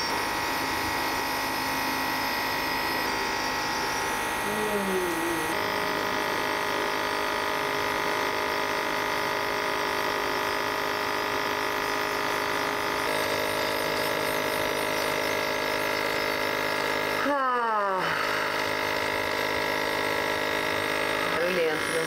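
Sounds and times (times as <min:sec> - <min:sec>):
nebulizer electric buzz: 0:00.0 - 0:22.0.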